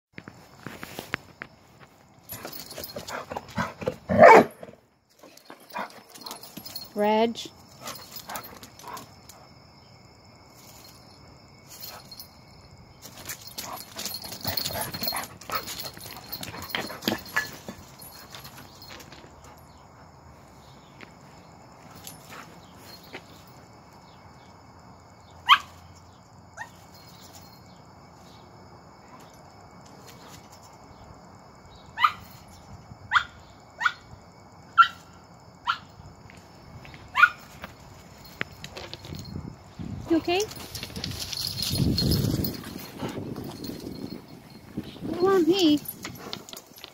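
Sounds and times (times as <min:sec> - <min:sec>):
dog yelping: 0:32.0 - 0:32.3, 0:37.1 - 0:37.4.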